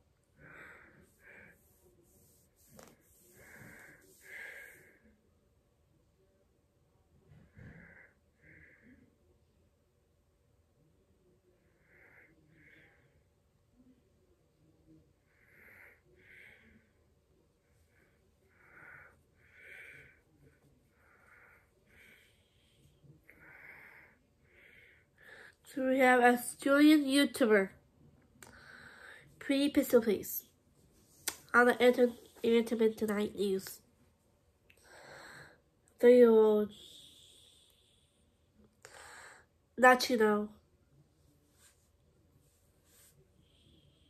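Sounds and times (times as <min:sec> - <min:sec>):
faint breathing: 0:00.1 - 0:05.3, 0:07.3 - 0:09.2, 0:15.2 - 0:25.7, 0:28.4 - 0:29.4, 0:34.7 - 0:39.6, 0:41.5 - 0:44.0.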